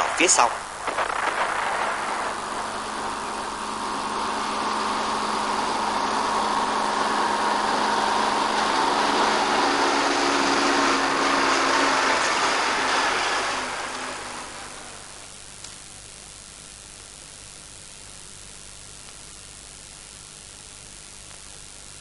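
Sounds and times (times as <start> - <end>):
tank engines droning: 0.0 - 15.8.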